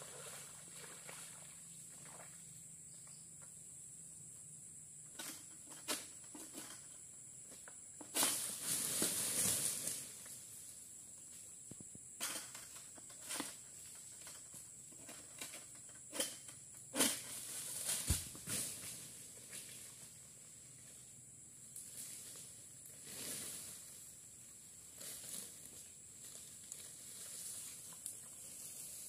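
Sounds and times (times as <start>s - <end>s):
high insect drone: 0.0s - 29.0s
palm fronds rustling and scraping: 5.1s - 11.5s, 12.2s - 29.0s
dull thump: 18.0s - 18.6s.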